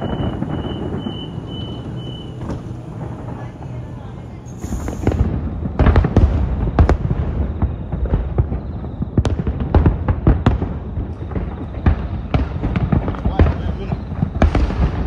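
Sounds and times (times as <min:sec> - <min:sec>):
low rumble: 0:00.0 - 0:08.6
fireworks bangs and cracks: 0:00.0 - 0:15.0.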